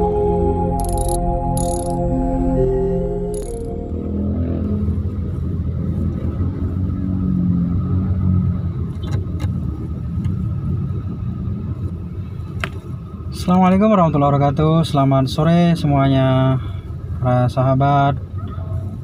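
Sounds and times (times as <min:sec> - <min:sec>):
soft intro music: 0:00.0 - 0:05.6
slow traffic: 0:00.0 - 0:19.0
car engine rumbling: 0:00.8 - 0:19.0.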